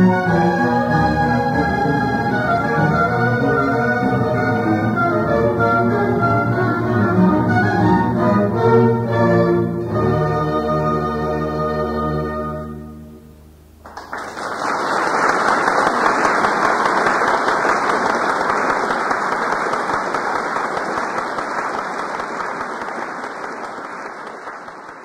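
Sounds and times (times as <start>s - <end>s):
audience applause: 13.8s - 25.0s.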